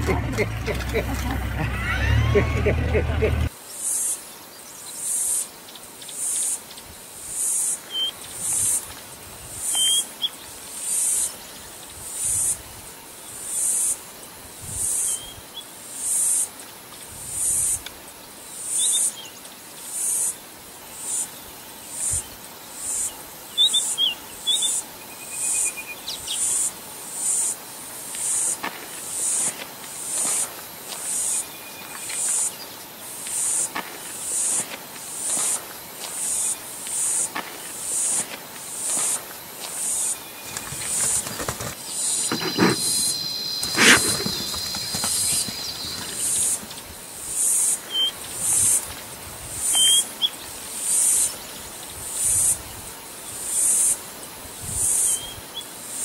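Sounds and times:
insect high-pitched buzzes: 19.8s - 56.0s
bird chirps: 40.3s - 46.8s, 47.9s - 48.1s.

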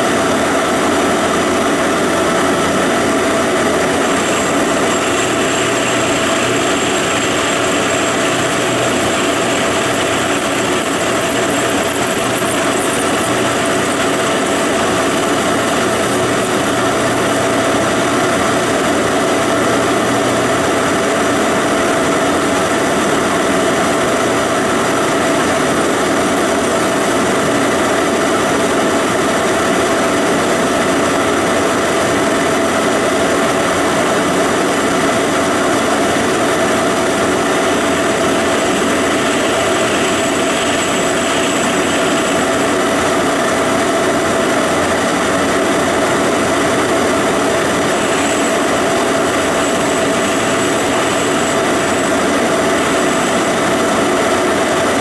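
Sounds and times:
lathe machine drone: 0.0s - 55.0s
steady machine whine: 0.0s - 55.0s.

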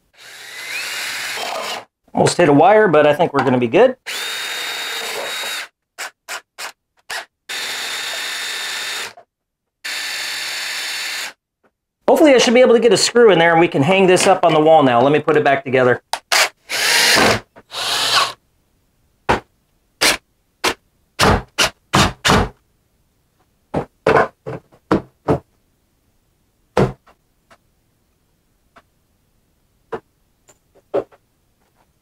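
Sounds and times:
cordless drill driving screws: 0.2s - 1.9s, 4.1s - 9.2s, 9.9s - 11.4s, 16.3s - 18.4s
plastic box knocks: 26.8s - 27.0s.

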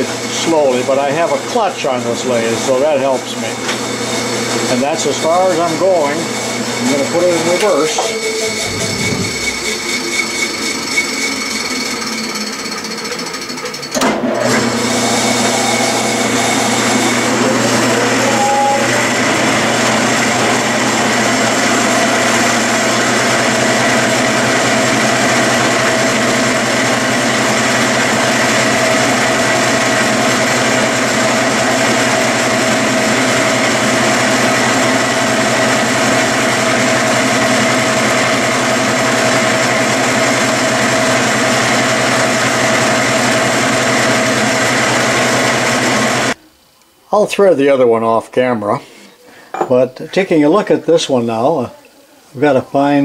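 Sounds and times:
metal lathe running: 0.0s - 46.4s
brief rising whine: 8.0s - 11.6s.

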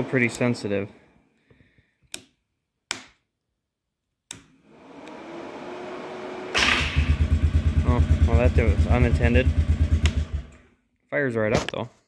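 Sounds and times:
switch clicks: 2.1s - 3.2s, 4.3s - 5.2s, 10.0s - 10.2s
engine starting: 6.5s - 7.5s.

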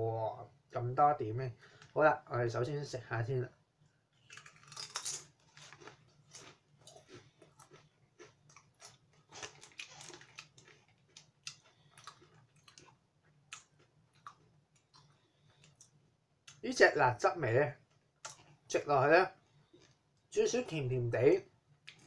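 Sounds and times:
person chewing potato chip: 4.1s - 16.6s.

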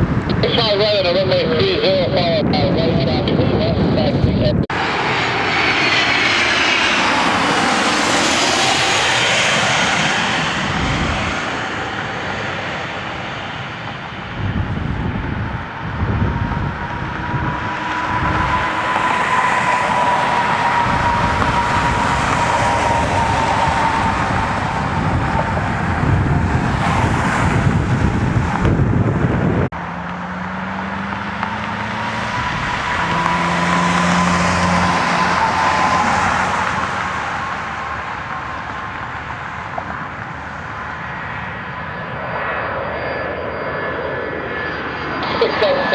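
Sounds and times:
rush of jet noise: 0.0s - 13.0s, 45.1s - 45.9s
jet engines whining: 0.0s - 45.9s.

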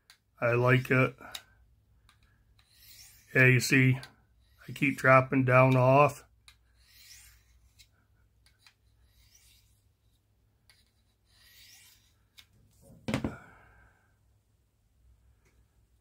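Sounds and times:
knife blade scraping on honing rod: 2.6s - 3.4s, 6.8s - 9.8s, 10.7s - 12.2s
knock: 13.1s - 13.4s.

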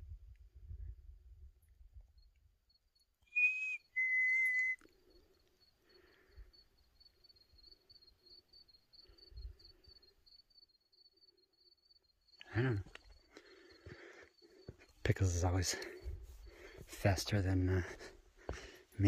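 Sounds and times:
cricket trill: 2.2s - 17.7s
person whistling: 3.3s - 4.8s.

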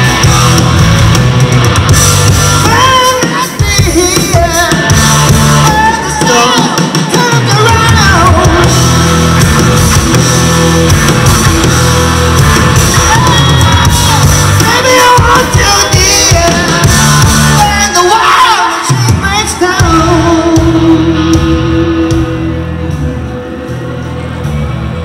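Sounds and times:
heavy bass line: 0.0s - 6.6s, 7.3s - 17.9s, 19.1s - 25.0s
distorted electric guitars: 0.0s - 25.0s
drum kit: 0.0s - 25.0s
man singing: 2.2s - 9.2s, 12.7s - 22.9s.

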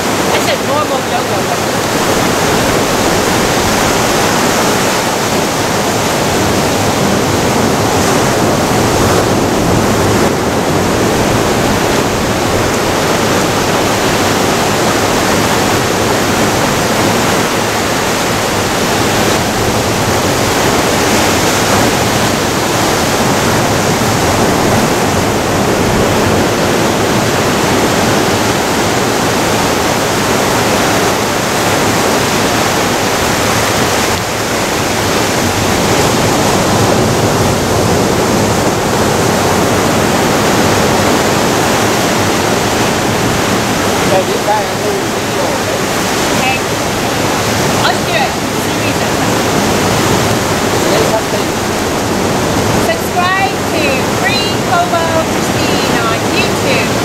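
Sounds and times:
ocean surf breaking over rocks: 0.0s - 57.0s.

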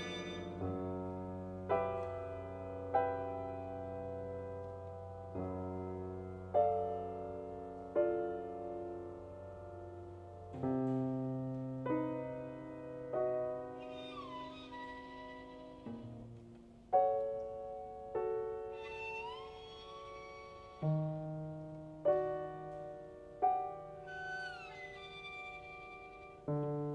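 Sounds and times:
grand piano playing slow chords: 0.0s - 26.9s.

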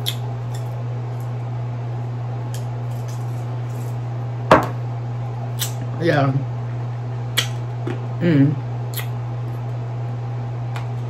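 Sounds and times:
steady low hum: 0.0s - 11.0s
glass set down on table: 4.5s - 4.8s.

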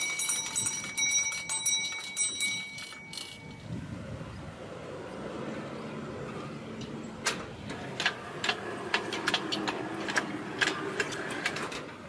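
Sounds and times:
clicks and ticks from wheels: 0.0s - 3.7s, 6.2s - 12.0s
miniature steam locomotive moving: 0.0s - 12.0s.

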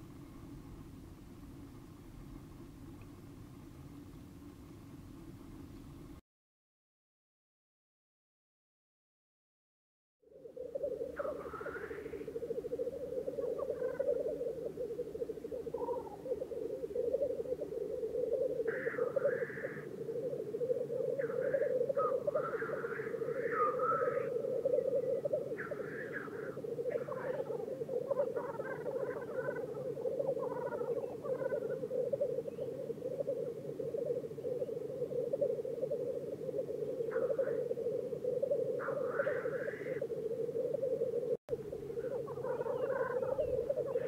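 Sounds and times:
grouse bubbling song chorus: 10.3s - 44.0s
higher bird calls: 10.4s - 44.0s
harsh bird call: 18.6s - 19.9s, 21.2s - 31.8s, 38.8s - 40.0s.

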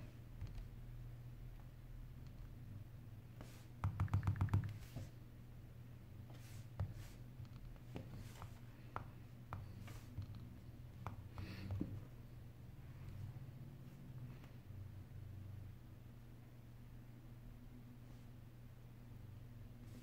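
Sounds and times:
low steady hum: 0.0s - 20.0s
fingertips tapping glass screen: 3.8s - 5.0s.

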